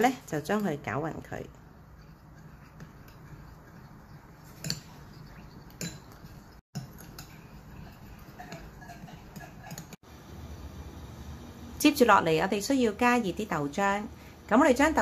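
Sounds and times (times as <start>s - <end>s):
spoon stirring slurry: 0.0s - 10.0s
spoon clinking on ceramic bowl: 4.5s - 10.0s.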